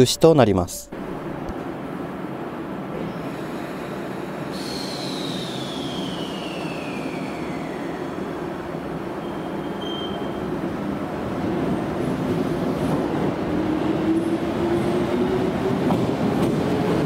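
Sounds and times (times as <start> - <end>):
electric train running rumble: 0.9 - 17.0
high whine falling in pitch: 5.3 - 10.2
brake squeal: 9.2 - 10.5.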